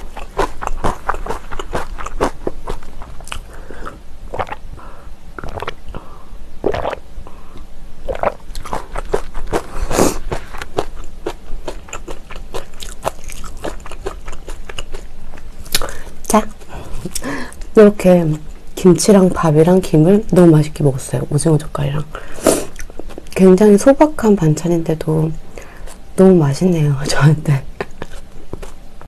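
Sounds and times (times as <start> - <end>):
person chewing with crunches: 0.0 - 7.0, 7.6 - 18.8, 22.4 - 23.4, 27.7 - 29.0.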